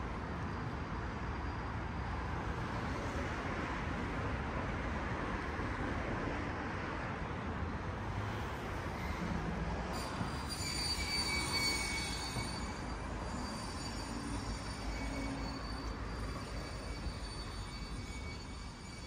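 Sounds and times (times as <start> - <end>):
city street traffic: 0.0 - 19.0
high-pitched vehicle squeal: 8.6 - 19.0.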